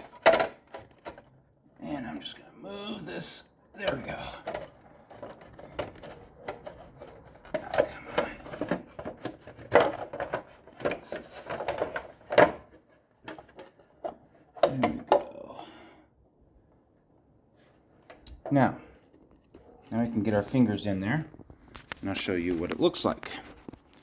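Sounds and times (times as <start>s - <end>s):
plastic panels clicking and knocking: 0.0s - 1.5s, 3.8s - 15.4s
plastic panels rattling: 0.0s - 1.6s, 3.8s - 15.3s.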